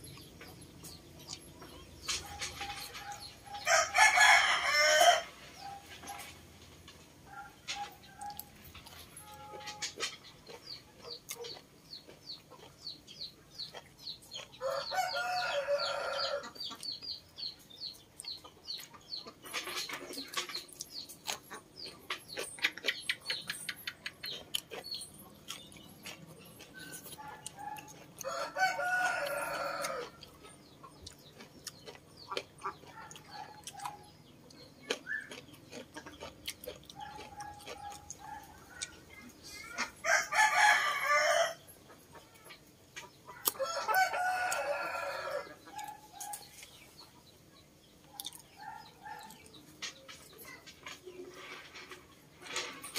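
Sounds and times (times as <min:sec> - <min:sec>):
wet chewing sounds: 0:00.0 - 0:04.6, 0:07.3 - 0:15.2, 0:18.0 - 0:40.7, 0:48.0 - 0:51.0
rooster crowing: 0:03.6 - 0:05.4, 0:14.6 - 0:16.5, 0:28.2 - 0:30.2, 0:40.0 - 0:41.6, 0:43.6 - 0:45.4.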